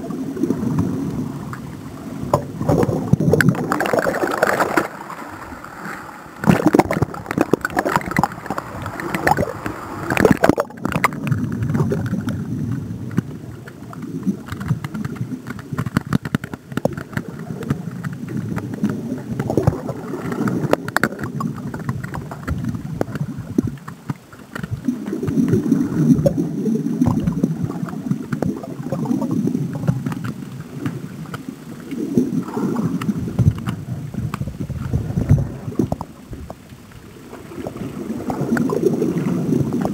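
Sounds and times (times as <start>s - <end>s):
water sloshing and gurgling: 0.0s - 39.9s
small clicks and knocks: 13.1s - 25.6s.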